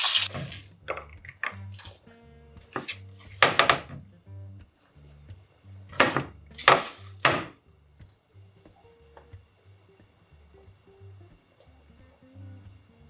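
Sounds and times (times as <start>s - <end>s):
quiet background music: 0.0s - 13.0s
vegetables scraping on cutting board: 2.7s - 3.4s.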